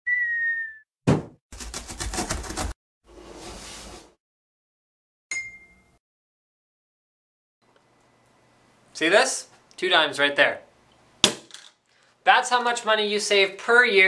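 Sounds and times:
cartoon falling whistle: 0.0s - 0.9s
sharp thump: 1.1s - 1.4s.

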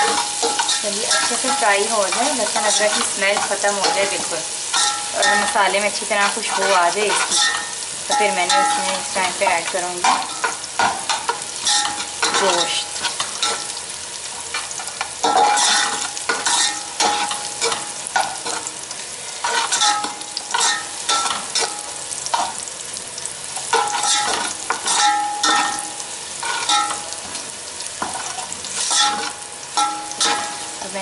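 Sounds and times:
onions sizzling in oil: 0.0s - 31.0s
pot ringing: 23.8s - 26.0s, 28.9s - 30.7s.

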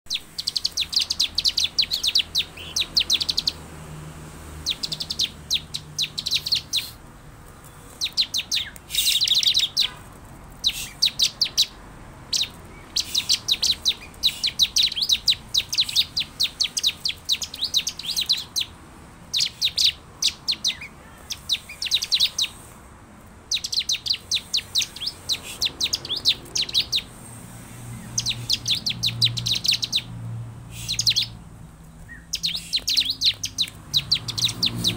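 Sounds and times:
bird rapid high chirps: 0.1s - 3.7s, 4.5s - 22.8s, 23.4s - 34.9s.

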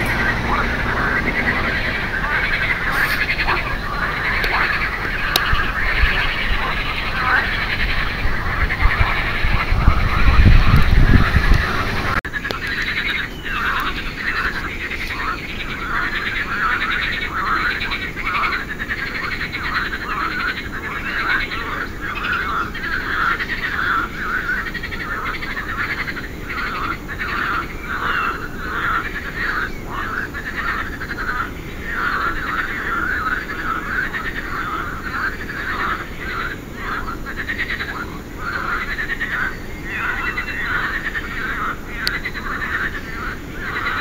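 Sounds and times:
frogs calling: 0.0s - 44.0s
low background noise: 0.0s - 44.0s.

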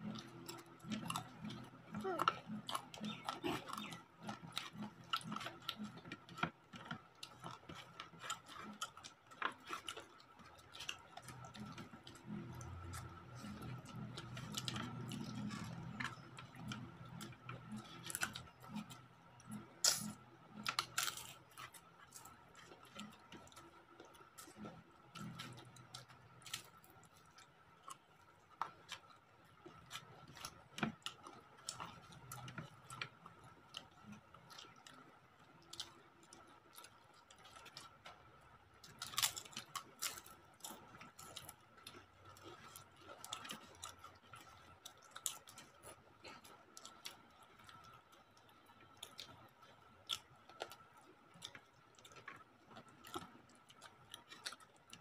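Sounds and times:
crunching chips: 0.0s - 23.6s, 35.6s - 55.0s
person chewing: 0.0s - 38.2s, 38.8s - 55.0s.

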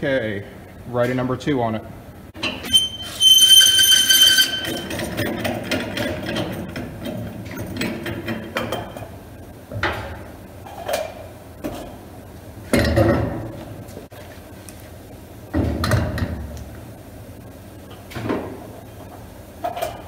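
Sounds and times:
metal clattering and clunks: 2.4s - 9.2s
high ringing tone: 2.5s - 5.1s.

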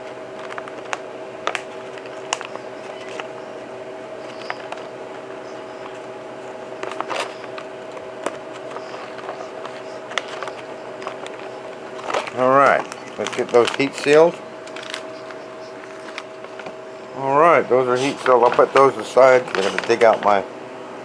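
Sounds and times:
steady low hum: 0.0s - 21.0s
plastic packaging crinkling: 6.8s - 16.9s, 17.9s - 20.4s.

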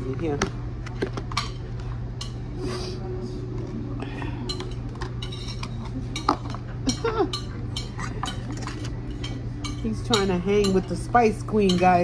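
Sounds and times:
dishes and cutlery clinking: 4.3s - 12.0s.

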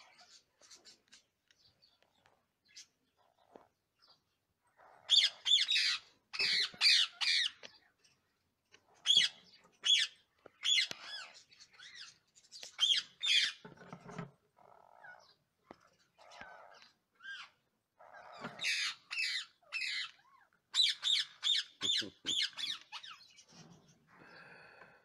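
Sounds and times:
parakeets squawking: 4.8s - 7.6s, 9.0s - 13.7s, 16.2s - 23.4s
raspy parakeet calls: 4.8s - 7.6s.

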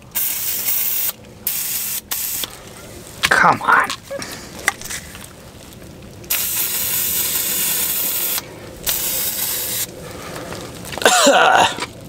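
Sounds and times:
aerosol spray can hissing: 0.1s - 2.5s, 6.3s - 9.9s.

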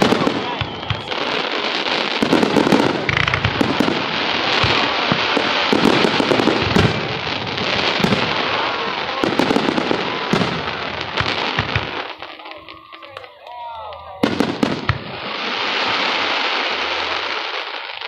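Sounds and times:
fireworks shells bursting: 0.0s - 8.4s
fireworks crackling: 0.0s - 18.0s.

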